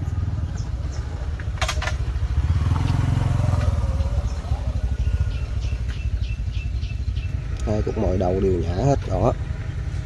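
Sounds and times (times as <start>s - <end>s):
low engine running: 0.0s - 10.0s
small birds chirping: 0.0s - 10.0s.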